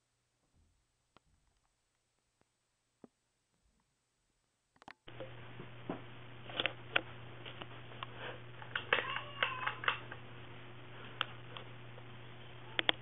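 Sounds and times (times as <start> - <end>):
ceiling fan humming and clicking: 4.8 - 13.0
cat meowing: 8.9 - 9.9.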